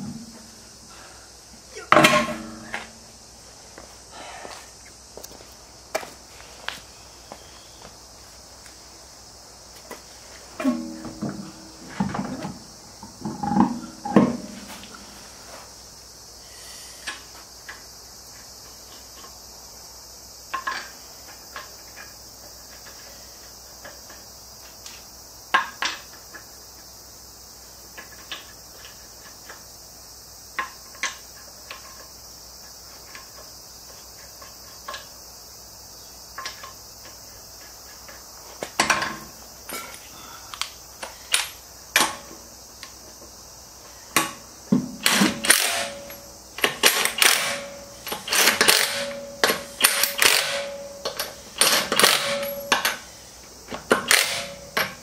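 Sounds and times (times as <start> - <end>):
lug nuts clicking on studs: 45.0 - 53.1.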